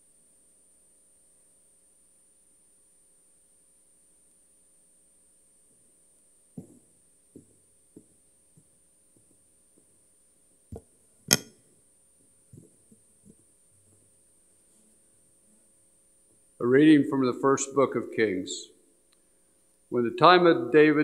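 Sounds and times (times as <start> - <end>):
faint steady hum: 0.0 - 21.0
footsteps on hard floor: 6.6 - 8.1.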